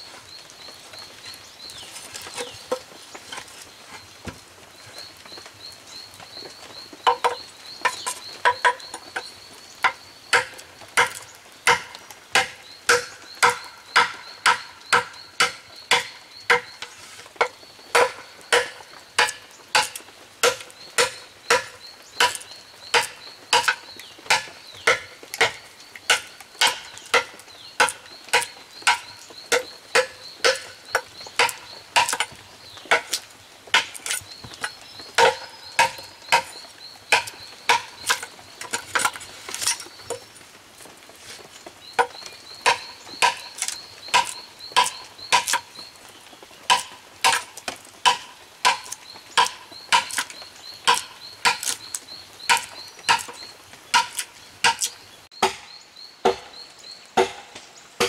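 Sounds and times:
knife chopping: 0:48.1 - 0:53.4.

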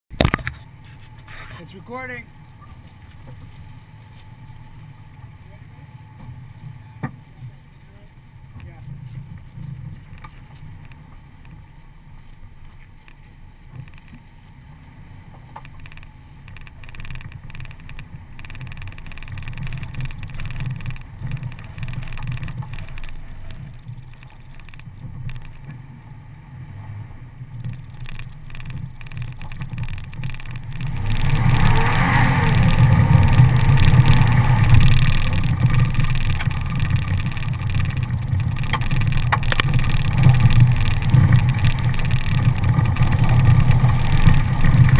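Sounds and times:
truck engine rumble: 0:00.1 - 0:44.9
wind and tyre noise: 0:00.1 - 0:44.9.

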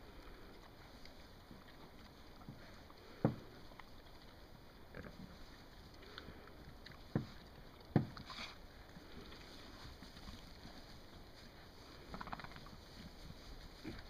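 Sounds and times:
rustling in hay: 0:08.2 - 0:14.0.

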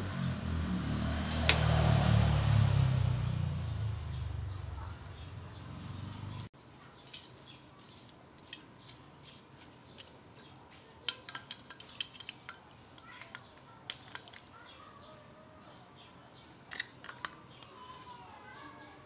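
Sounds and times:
metal clicks and clinks: 0:07.0 - 0:14.6, 0:16.7 - 0:17.7.

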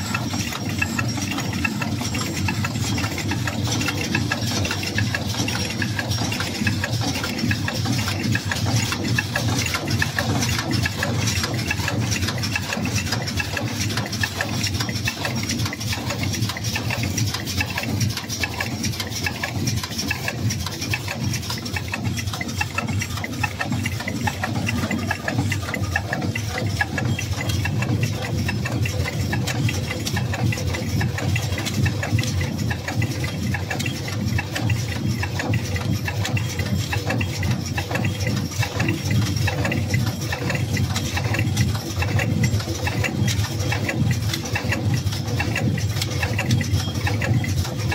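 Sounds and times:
fast mechanical ticking: 0:00.0 - 0:47.9
packing machine humming: 0:00.0 - 0:47.9.

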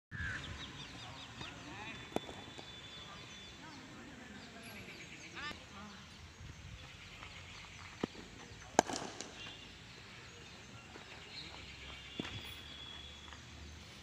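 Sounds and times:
cricket bat striking ball: 0:02.1 - 0:02.8, 0:08.0 - 0:09.6.

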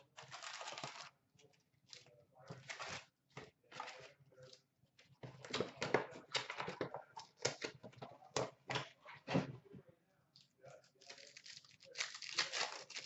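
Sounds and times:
cards rustling: 0:00.1 - 0:01.2
card pack wrapper crinkling and tearing: 0:00.2 - 0:01.1, 0:11.0 - 0:13.0.

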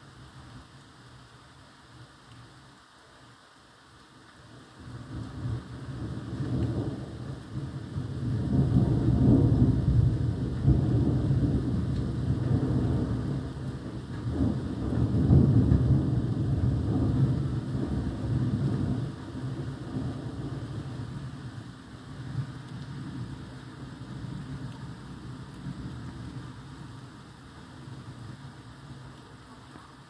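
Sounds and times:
steady rain: 0:00.0 - 0:30.0
thunder rumbling: 0:05.2 - 0:29.0.

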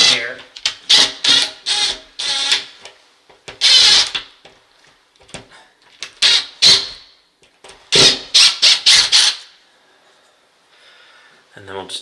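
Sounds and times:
cordless driver spinning screw: 0:03.6 - 0:04.2.

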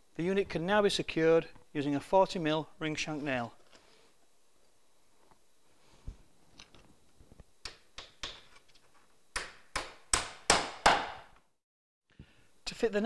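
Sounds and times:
hammer striking nail: 0:09.4 - 0:11.3.

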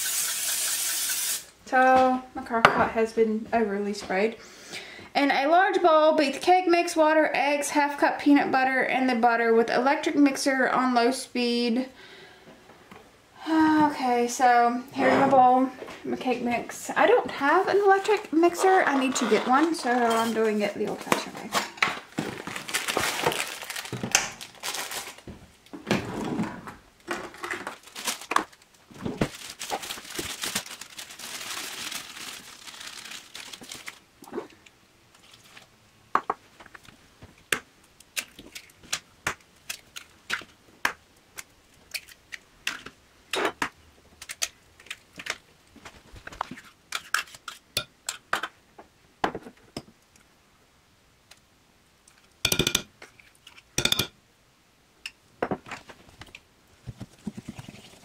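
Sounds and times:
bag crinkling and tearing: 0:21.6 - 0:25.3, 0:27.2 - 0:34.0
eggs and spoon tapping bowl: 0:52.5 - 0:52.9, 0:53.8 - 0:54.2.

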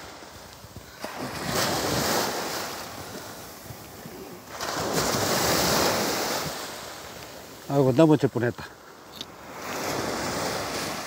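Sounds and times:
waves washing up a sandy beach: 0:00.0 - 0:11.0.

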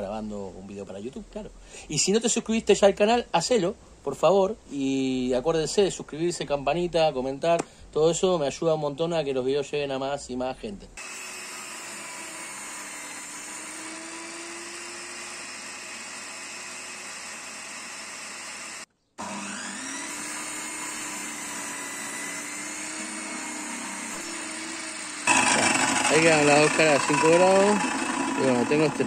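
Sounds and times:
table saw humming: 0:11.0 - 0:29.0.

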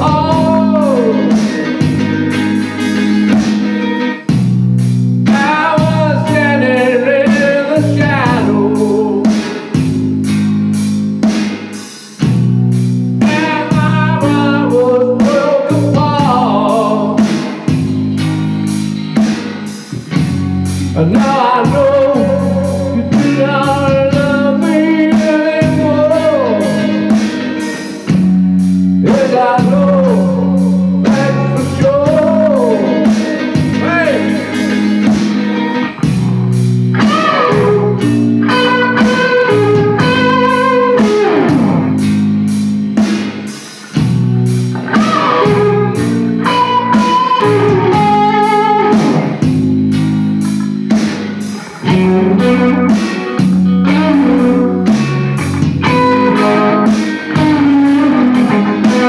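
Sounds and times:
man singing: 0:00.0 - 0:01.8, 0:05.3 - 0:09.8, 0:13.2 - 0:17.7, 0:20.9 - 0:28.0, 0:29.0 - 0:34.6, 0:55.9 - 0:59.0
drums and bass: 0:00.0 - 0:59.0
electric guitar with bent notes: 0:00.0 - 0:59.0.

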